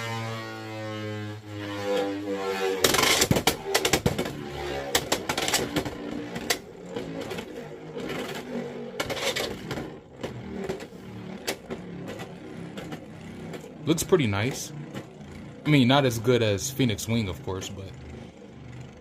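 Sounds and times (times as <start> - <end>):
spinning top whirring rattle: 0.0 - 19.0
sharp clicks and knocks: 2.8 - 15.7.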